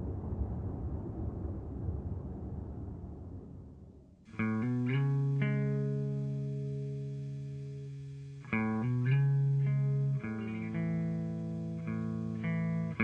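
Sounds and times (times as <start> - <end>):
plucked string chords music: 4.3 - 13.0.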